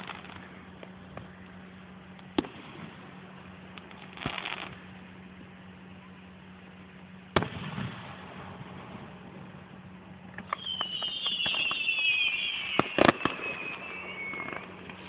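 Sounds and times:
fireworks bangs: 0:03.8 - 0:04.8, 0:07.4 - 0:15.0
fireworks boom echoing: 0:07.4 - 0:09.3, 0:10.4 - 0:15.0.

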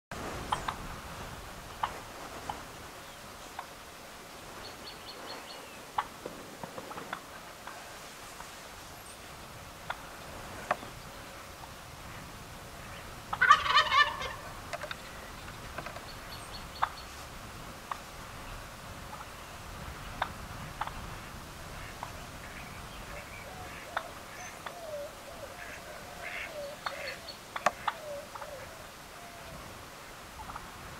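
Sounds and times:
turkey gobbling: 0:13.3 - 0:15.0, 0:20.2 - 0:21.0, 0:23.1 - 0:29.4.

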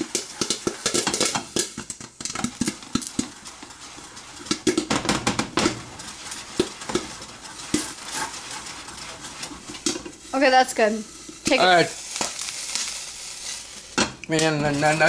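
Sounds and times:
pan and lid clattering: 0:00.0 - 0:10.2
popcorn popping: 0:00.0 - 0:15.0.

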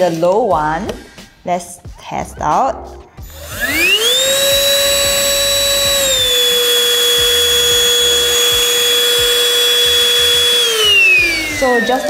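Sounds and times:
handheld vacuum cleaner whining: 0:03.2 - 0:12.0.

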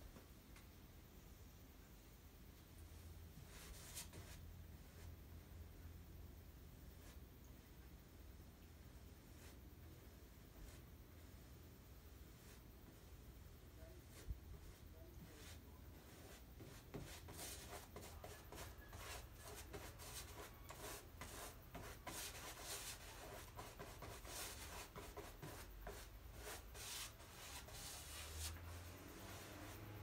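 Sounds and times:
paintbrush rubbing on canvas: 0:03.4 - 0:05.1, 0:12.2 - 0:30.0.

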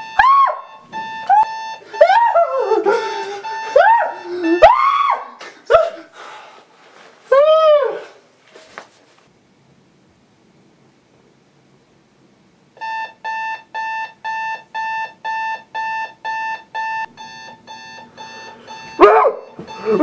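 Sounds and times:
clock radio alarm beeping: 0:00.0 - 0:05.1, 0:12.8 - 0:20.0.

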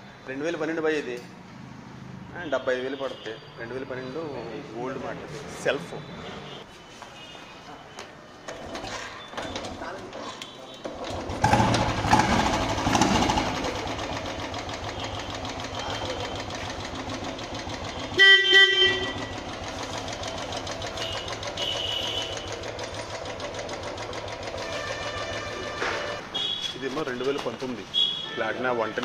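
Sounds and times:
motorcycle engine revving and idling: 0:10.9 - 0:25.5
motorcycle horn honk: 0:17.6 - 0:19.7, 0:20.8 - 0:22.7, 0:24.5 - 0:26.8, 0:28.0 - 0:29.0.

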